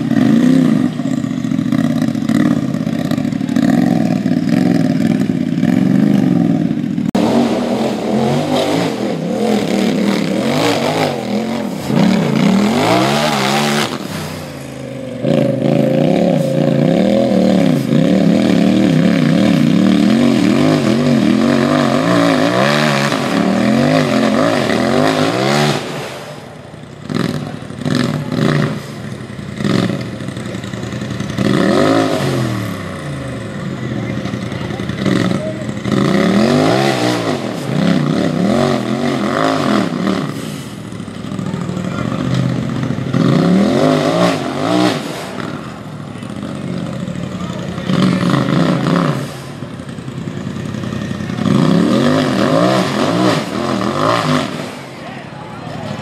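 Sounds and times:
engine revving hard: 7.1s - 26.4s, 27.0s - 29.0s, 31.3s - 33.2s, 34.2s - 40.8s, 41.8s - 46.9s, 47.7s - 49.7s, 51.3s - 54.9s.

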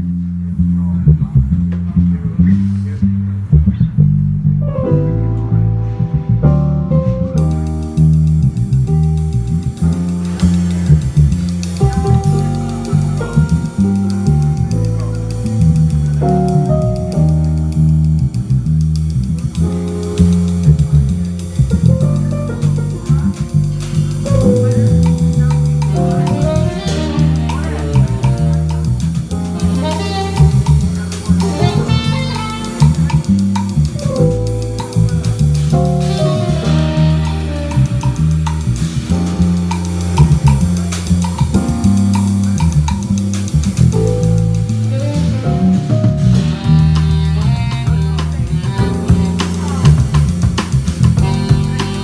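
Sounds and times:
bass guitar line: 0.0s - 52.0s
funky jazz band playing: 0.0s - 52.0s
drum kit: 3.6s - 52.0s.

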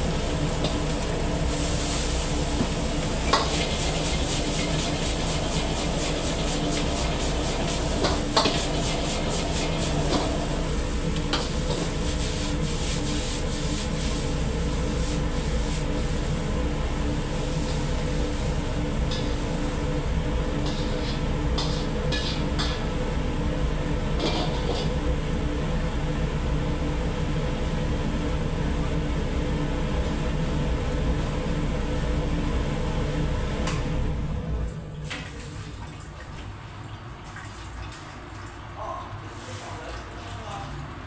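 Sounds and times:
rice sizzling in a wok: 0.0s - 25.1s
gas burner rushing: 0.0s - 26.4s.

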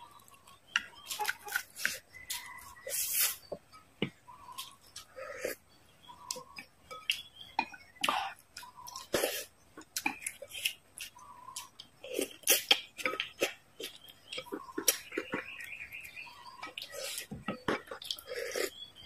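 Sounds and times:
wet chewing and slurping: 8.0s - 18.9s.

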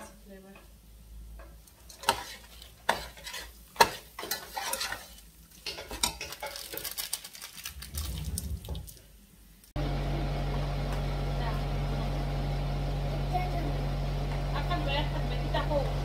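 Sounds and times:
spatula clanking against pot: 1.4s - 6.6s
metal spatula scraping rice in pot: 1.8s - 6.8s.

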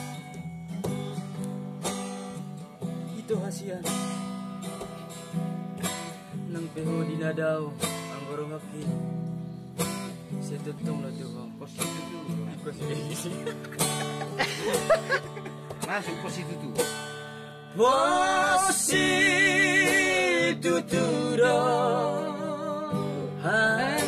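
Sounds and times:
acoustic guitar strumming: 0.0s - 24.0s
man singing: 17.7s - 24.0s.

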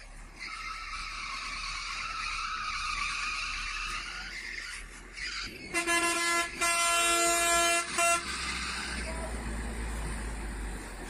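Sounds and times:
vehicle engine and road noise: 0.0s - 11.0s
loud vehicle horn: 5.7s - 8.5s.

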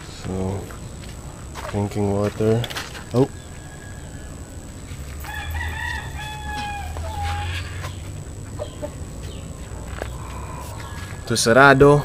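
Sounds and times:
rooster crowing: 2.8s - 9.0s, 10.1s - 12.0s.

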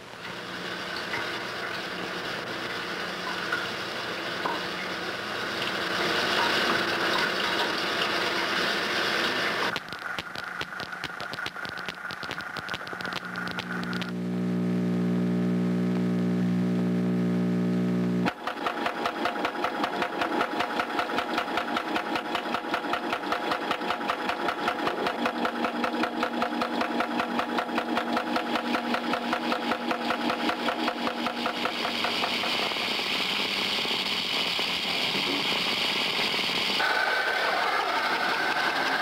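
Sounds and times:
motor chugging: 18.2s - 39.0s.

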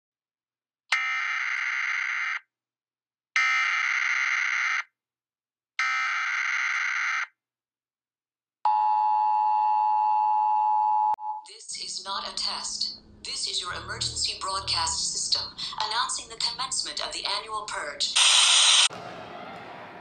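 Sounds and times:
raspy digital data bursts: 18.1s - 18.9s.

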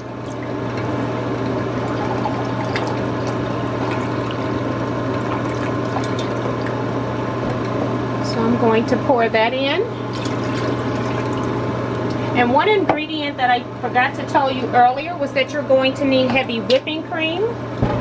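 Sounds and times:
liquid pouring into glass cup: 0.0s - 7.0s, 10.1s - 11.8s.

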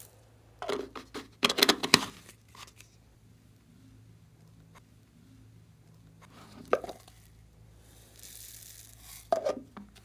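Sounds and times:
soft hiss: 2.1s - 10.0s.

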